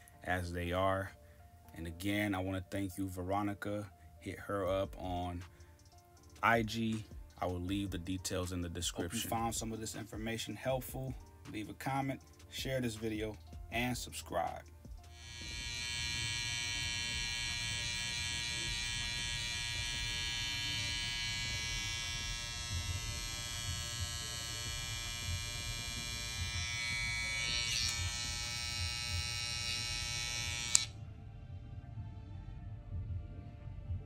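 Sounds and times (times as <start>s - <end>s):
hair trimmer buzzing: 15.1s - 31.0s
trimmer switch click: 30.6s - 30.9s.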